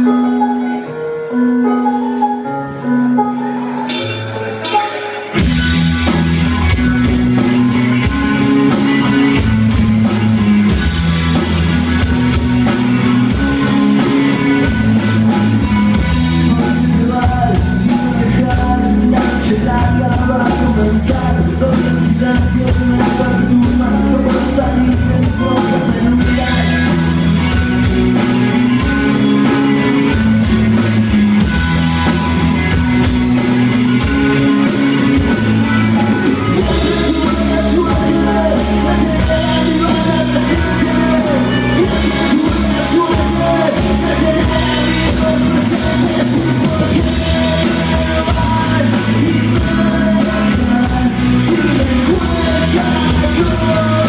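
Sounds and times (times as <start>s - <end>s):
bass guitar: 0.0s - 54.0s
electric guitars: 0.0s - 54.0s
drum kit beat: 3.8s - 54.0s
man singing: 13.2s - 28.8s, 34.4s - 54.0s.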